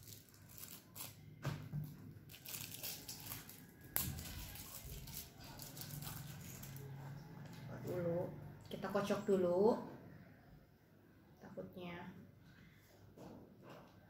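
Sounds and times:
plastic wrapper crinkling and tearing: 0:00.0 - 0:01.3, 0:02.1 - 0:06.9.

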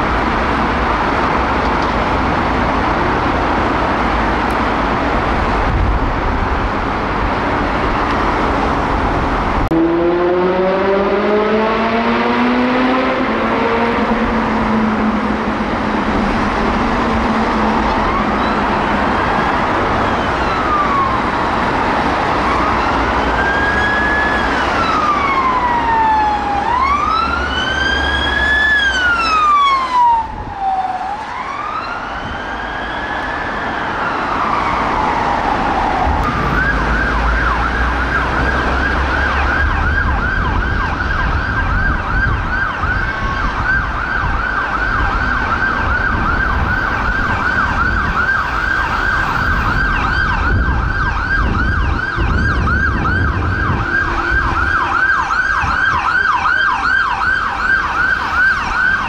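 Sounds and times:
police siren slow wail: 0:00.0 - 0:59.0
road traffic: 0:00.0 - 0:59.0
ambulance siren fast yelp: 0:12.9 - 0:59.0.

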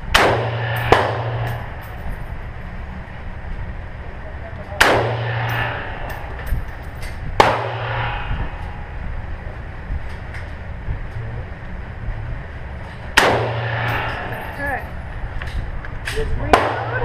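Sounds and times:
rifle shots with ringing echo: 0:00.1 - 0:01.9, 0:04.8 - 0:06.5, 0:07.4 - 0:08.7, 0:13.2 - 0:14.8, 0:16.5 - 0:17.0
fainter distant gunshots: 0:04.8 - 0:06.4, 0:07.4 - 0:08.3.

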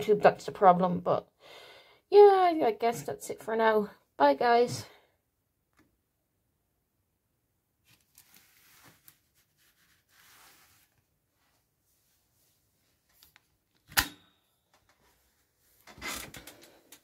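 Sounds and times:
fingers rustling canvas: 0:07.8 - 0:11.0.

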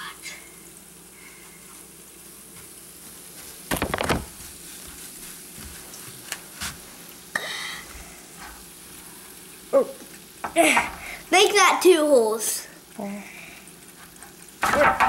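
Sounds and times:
baking soda and vinegar fizzing: 0:00.0 - 0:15.0.

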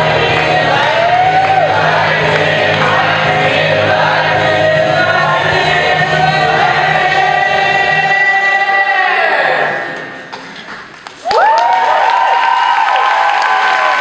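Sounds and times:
backing track with bass line: 0:00.0 - 0:08.7
group of voices singing: 0:00.0 - 0:10.2.

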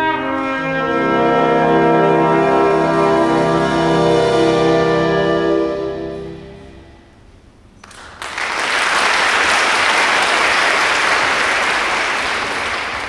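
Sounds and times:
audience applause: 0:07.8 - 0:13.0.

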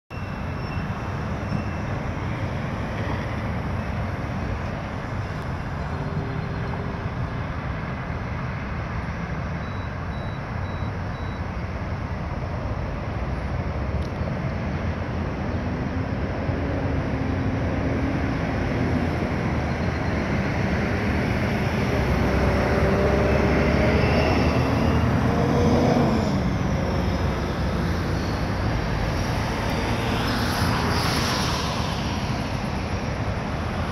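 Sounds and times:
faint high beeps: 0:00.1 - 0:02.0, 0:09.6 - 0:11.6
road traffic: 0:00.1 - 0:33.9
engine passing by: 0:13.6 - 0:33.9.

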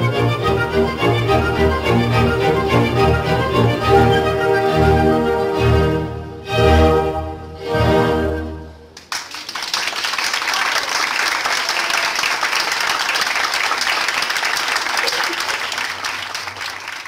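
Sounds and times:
audience applauding: 0:09.0 - 0:17.0.

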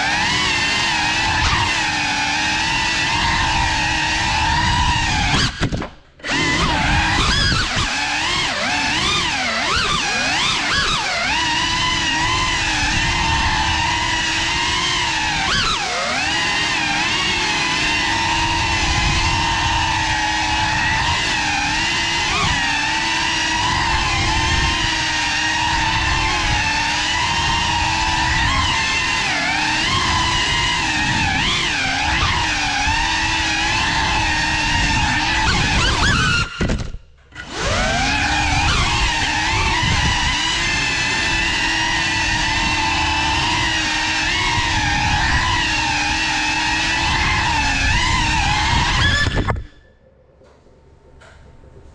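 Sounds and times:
drone propellers whining: 0:00.0 - 0:51.9.

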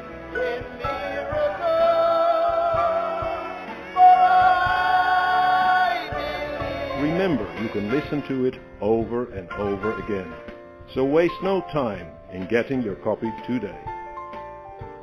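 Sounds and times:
worship song accompaniment: 0:00.0 - 0:13.7
person singing with vibrato: 0:00.2 - 0:08.2.

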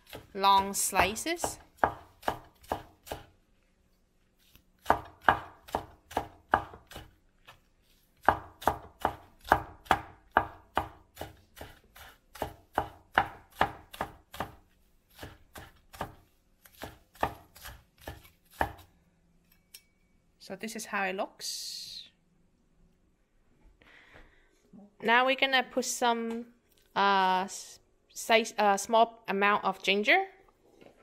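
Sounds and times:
cleaver chopping on wooden board: 0:01.5 - 0:03.3, 0:04.8 - 0:07.1, 0:08.2 - 0:14.6, 0:15.2 - 0:18.8.

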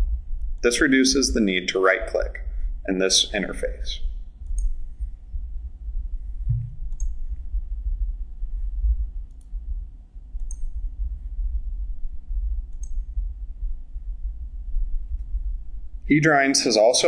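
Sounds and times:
steady low hum: 0:00.0 - 0:17.0
computer mouse clicks: 0:04.4 - 0:04.8, 0:06.5 - 0:07.3, 0:09.3 - 0:09.6, 0:10.4 - 0:10.8, 0:12.7 - 0:13.1.

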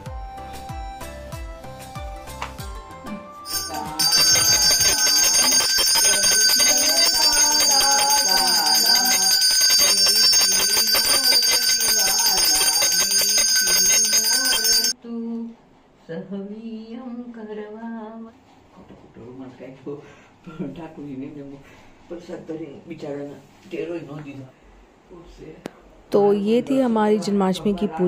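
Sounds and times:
person singing: 0:03.0 - 0:09.3
person speaking: 0:03.5 - 0:14.9
small hand bell ringing rapidly: 0:03.5 - 0:15.0.

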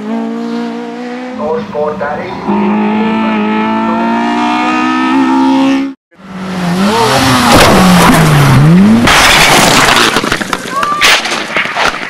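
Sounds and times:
car engine at high revs passing: 0:00.0 - 0:09.2
race car engine: 0:00.0 - 0:10.5.

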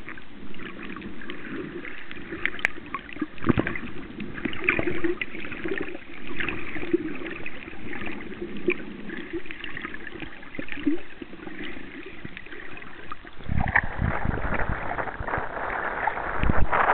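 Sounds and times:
underwater gurgling: 0:00.0 - 0:16.9
water sloshing: 0:00.0 - 0:16.9
wind on microphone: 0:13.3 - 0:16.9.

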